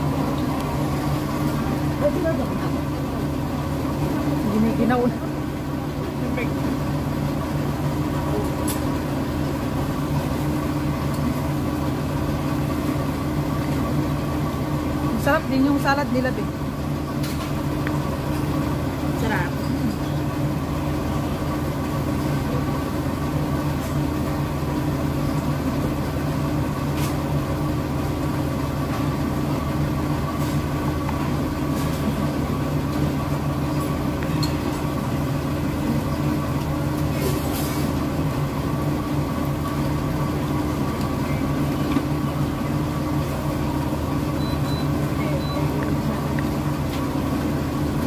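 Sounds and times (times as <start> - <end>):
low mechanical hum: 0.0 - 48.0.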